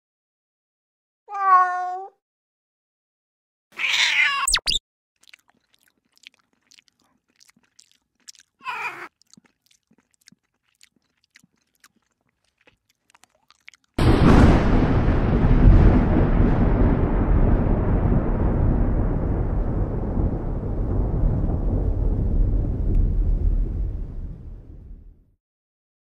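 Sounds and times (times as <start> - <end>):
kitten crying: 1.3 - 2.2, 3.8 - 4.8, 8.6 - 9.1.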